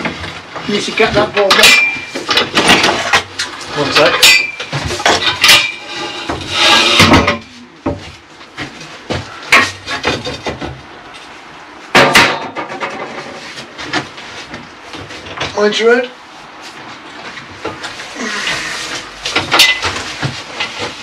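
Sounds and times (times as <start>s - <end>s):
metal props and plank clanking: 0.0s - 10.9s, 11.9s - 14.2s, 17.4s - 21.0s
short scrape: 5.8s - 7.1s.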